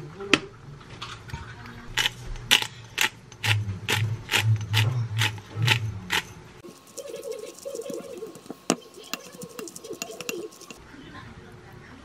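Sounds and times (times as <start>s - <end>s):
pepper grinder clicking and grinding: 2.0s - 6.3s, 6.9s - 10.8s.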